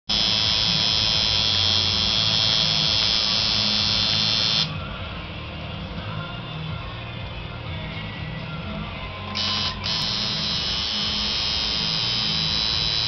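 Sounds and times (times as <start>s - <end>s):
electric tattoo machine buzzing: 0.1s - 4.8s, 9.3s - 13.0s
music playing: 0.1s - 13.0s.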